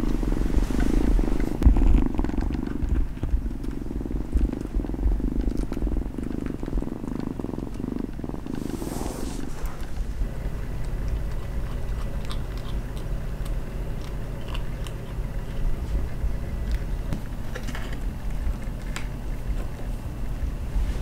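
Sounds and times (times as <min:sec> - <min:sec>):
kitten purring: 0:00.0 - 0:21.0.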